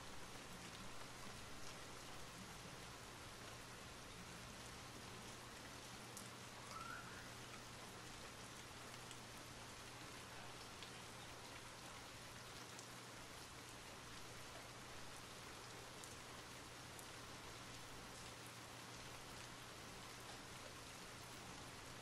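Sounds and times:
faint steady rain: 0:00.0 - 0:22.0.

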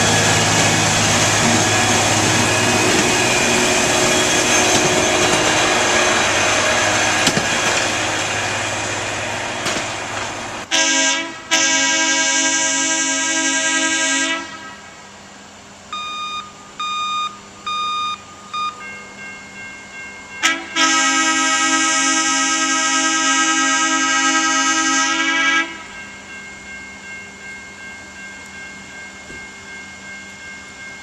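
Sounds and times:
air horn blasts: 0:10.7 - 0:15.0, 0:20.4 - 0:25.9
short high beeps: 0:15.9 - 0:18.8.

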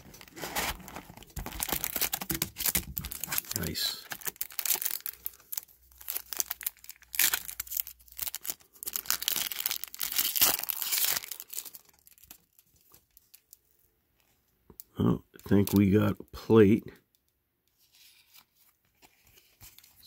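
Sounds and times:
foil wrapper crinkling and tearing: 0:00.0 - 0:13.6.

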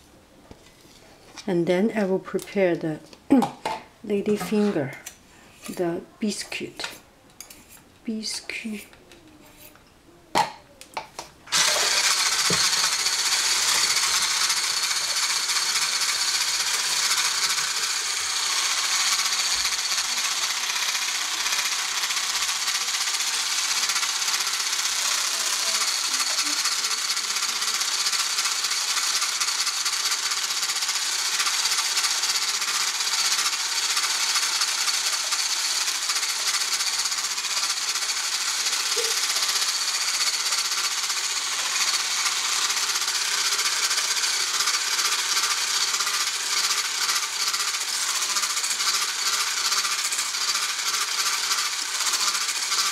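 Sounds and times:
electric whisk running: 0:11.5 - 0:52.9.

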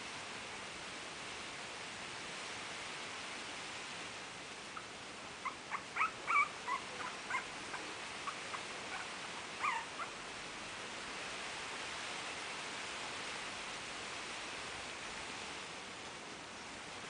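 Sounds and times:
puppies whimpering: 0:04.8 - 0:10.2.

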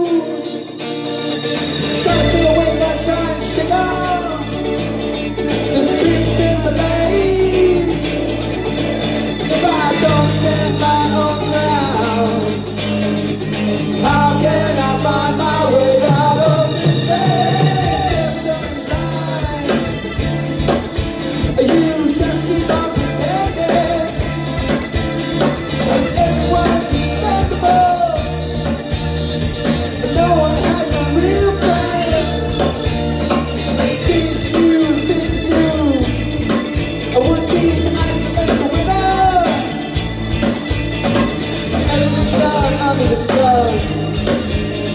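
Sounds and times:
keyboard and bass notes: 0:00.0 - 0:44.9
bending melody line: 0:01.2 - 0:44.9
drum kit with cymbals: 0:16.1 - 0:44.9.

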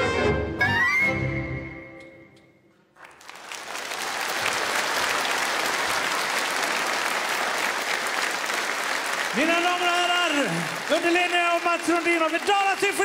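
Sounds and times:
audience applause: 0:02.9 - 0:13.0.

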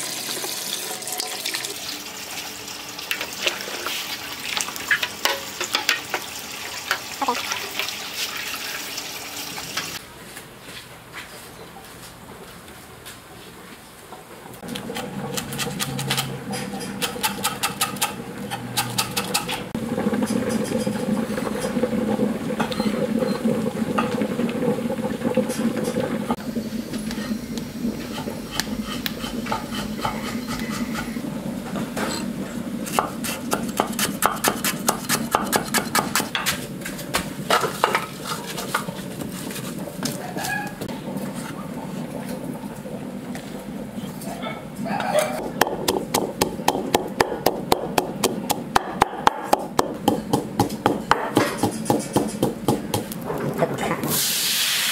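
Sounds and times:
utensils and cookware clicking: 0:14.6 - 0:21.8, 0:45.1 - 0:53.5.

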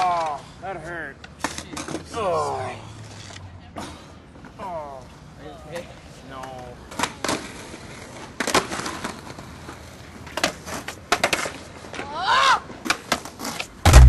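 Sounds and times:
skateboard wheels rolling: 0:00.0 - 0:14.0
skateboard clacks and pops: 0:06.9 - 0:14.0.

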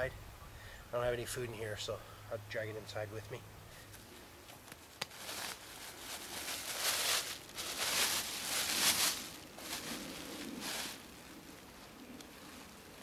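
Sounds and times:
plastic bag rustling and crackling: 0:04.8 - 0:11.6.

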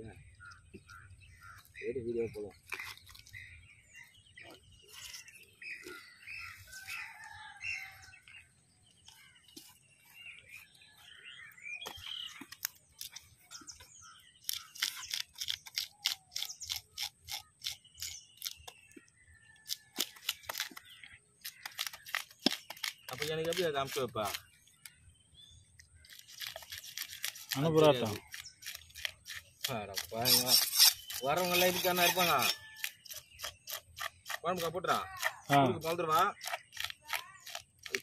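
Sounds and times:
birds chirping: 0:00.0 - 0:38.0
knife scraping fish: 0:14.4 - 0:18.7, 0:26.1 - 0:38.0.

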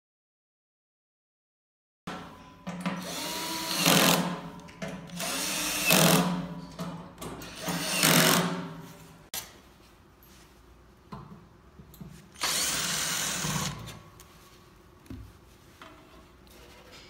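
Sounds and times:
cordless drill driver motor: 0:05.2 - 0:06.2, 0:12.4 - 0:13.9.

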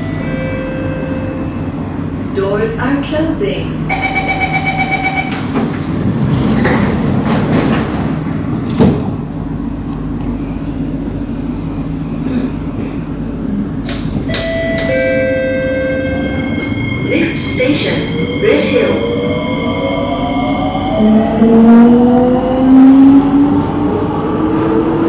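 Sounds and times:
low train rumble: 0:00.0 - 0:25.0
train doors shutting: 0:03.9 - 0:10.4, 0:12.2 - 0:22.3.

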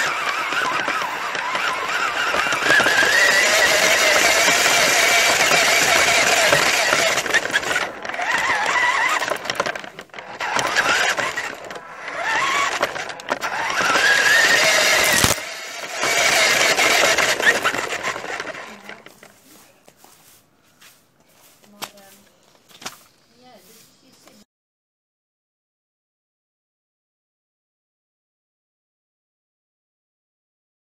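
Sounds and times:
toy truck motor whining: 0:00.0 - 0:19.4
toy truck rolling rattle: 0:00.0 - 0:19.4.

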